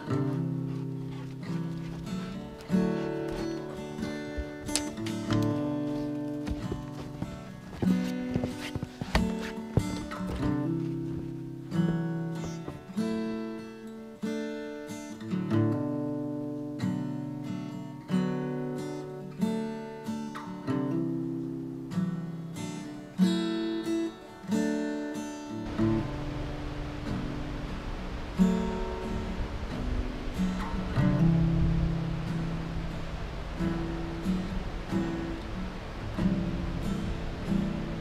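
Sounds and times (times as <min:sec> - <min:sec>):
acoustic guitar plucked melody: 0:00.0 - 0:38.0
steady hiss: 0:00.0 - 0:38.0.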